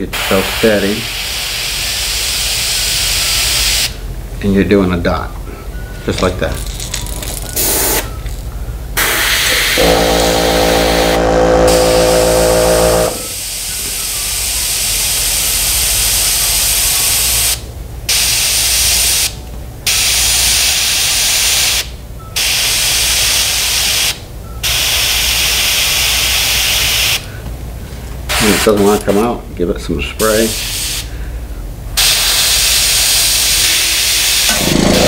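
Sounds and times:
steady hum: 0:00.0 - 0:35.0
airbrush air hiss: 0:00.1 - 0:04.0, 0:07.6 - 0:08.1, 0:09.0 - 0:27.3, 0:30.2 - 0:31.1, 0:32.0 - 0:34.5.

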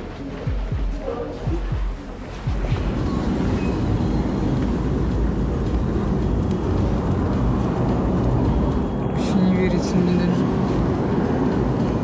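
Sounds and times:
vehicle engine and road rumble: 0:00.0 - 0:12.0.

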